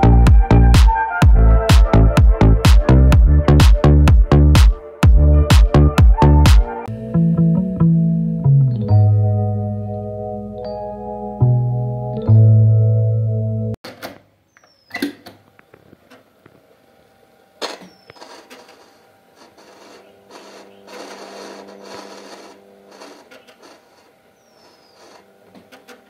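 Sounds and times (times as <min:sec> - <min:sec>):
faint motor hum: 0:15.4 - 0:26.0
music from cassette recorder: 0:19.5 - 0:23.8.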